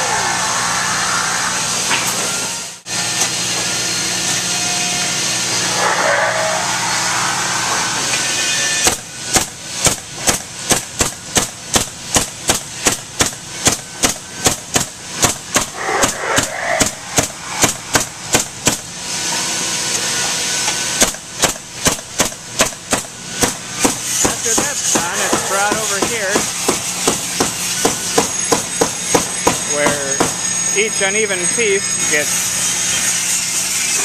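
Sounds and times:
steady shop hum: 0.0s - 34.0s
power fastening gun firing: 8.8s - 18.9s, 21.0s - 24.3s.

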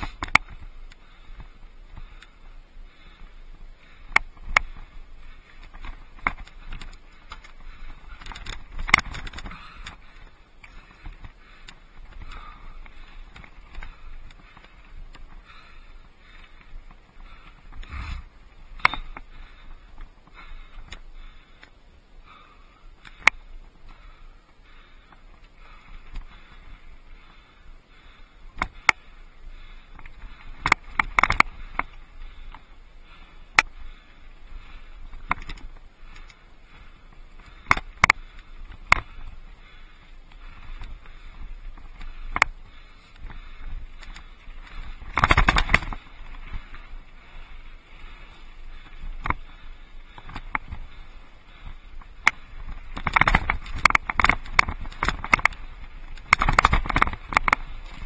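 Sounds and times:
bike knocking over rocks: 5.6s - 15.6s, 29.9s - 32.0s, 40.6s - 46.9s, 52.0s - 58.0s.

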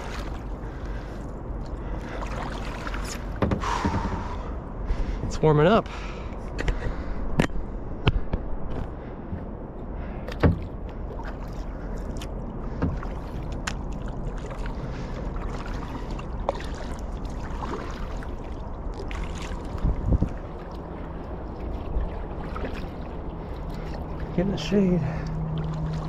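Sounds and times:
water drips and splashes: 0.0s - 4.5s, 10.3s - 26.0s
paddle strokes through water: 0.0s - 7.1s, 10.2s - 26.0s.

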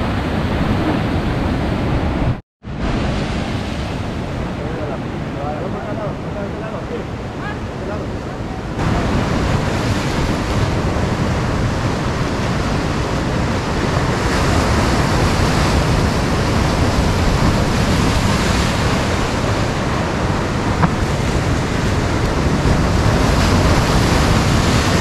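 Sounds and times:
wind buffeting microphone: 0.0s - 25.0s
surf breaking over rocks: 8.8s - 25.0s.

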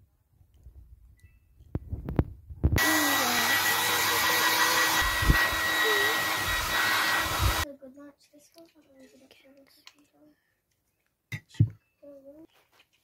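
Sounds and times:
hair dryer blowing: 2.8s - 7.6s.

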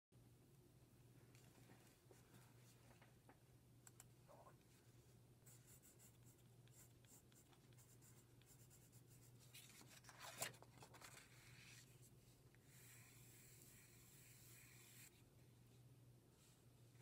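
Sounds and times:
pencil scratching on paper: 5.5s - 9.4s, 12.6s - 15.2s.

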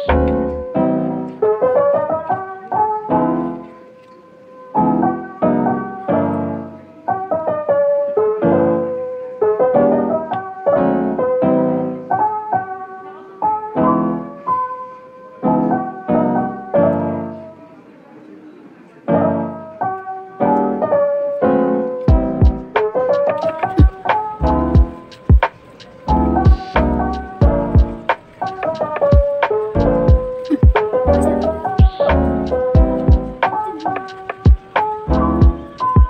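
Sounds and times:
slow piano tune: 0.0s - 36.0s.

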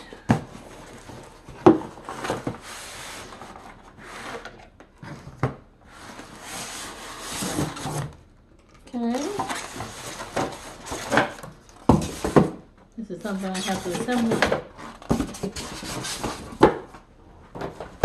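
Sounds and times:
plastic bags rustling: 8.8s - 12.5s
cardboard flaps scraping: 13.4s - 16.9s.

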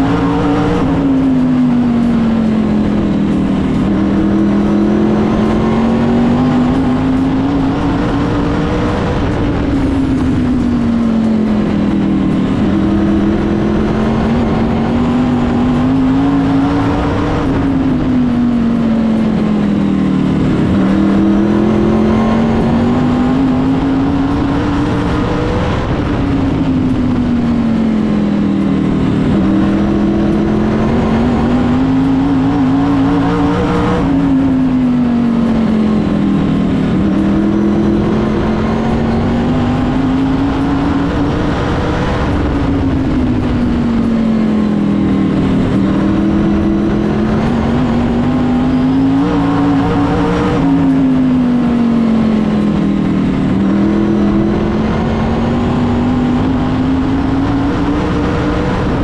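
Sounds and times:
race car engine from cockpit: 0.0s - 59.0s.

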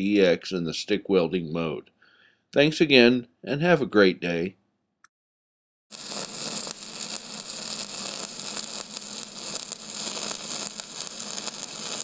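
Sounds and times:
welding arc crackling and sizzling: 5.9s - 12.0s.

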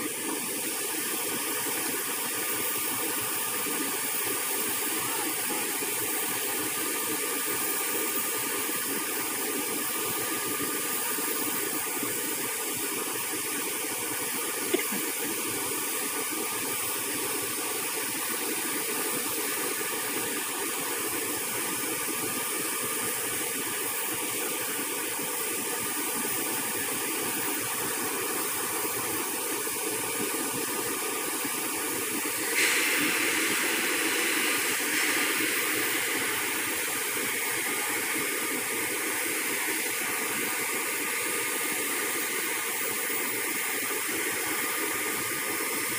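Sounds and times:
jet turbine hiss: 0.0s - 45.9s
faint high whining tones: 31.4s - 45.9s.

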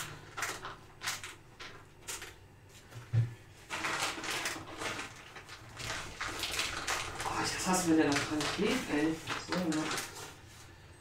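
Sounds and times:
packaging rustling: 3.6s - 10.7s.

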